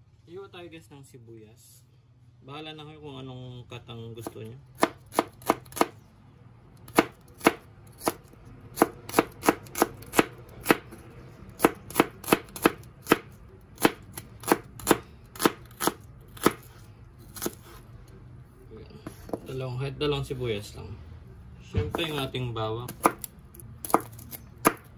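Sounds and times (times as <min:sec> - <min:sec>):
knife chopping on cutting board: 0:04.2 - 0:06.0, 0:06.9 - 0:11.0, 0:11.6 - 0:16.7, 0:17.3 - 0:17.8, 0:21.8 - 0:22.2, 0:22.9 - 0:24.9.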